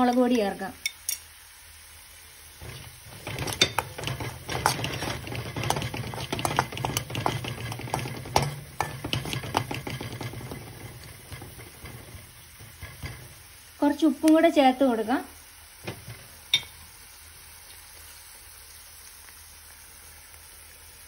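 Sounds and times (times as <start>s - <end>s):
metal spoon scraping a wok: 2.6s - 13.8s
spoon clinking against pan: 3.2s - 13.4s, 16.5s - 16.8s.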